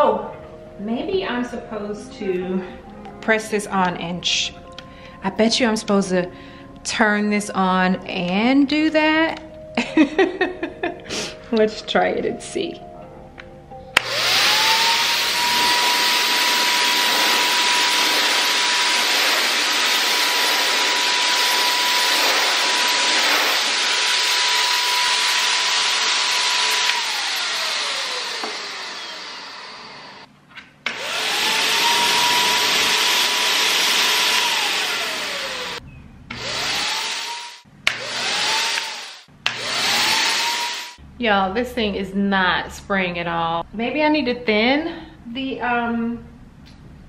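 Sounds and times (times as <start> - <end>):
paint sprayer motor whining: 14.0 - 41.0.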